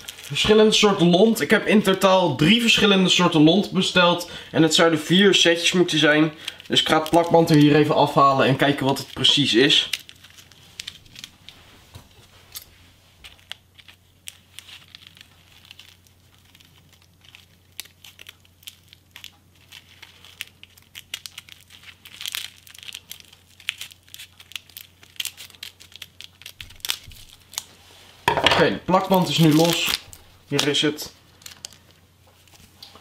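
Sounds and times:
adhesive tape peeling: 0:13.3 - 0:27.7.

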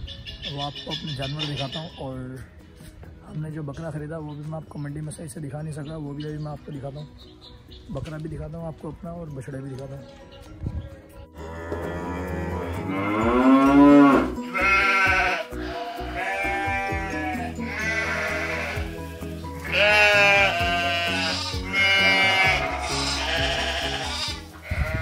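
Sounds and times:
background music: 0:00.0 - 0:25.0
goats bleating: 0:11.4 - 0:25.0.

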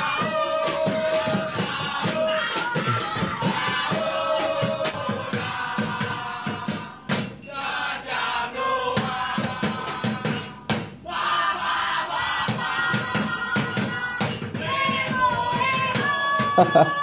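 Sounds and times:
drumming on plastic barrels: 0:00.0 - 0:07.4, 0:09.0 - 0:11.1, 0:12.1 - 0:17.0
men chanting in unison: 0:00.0 - 0:17.0.

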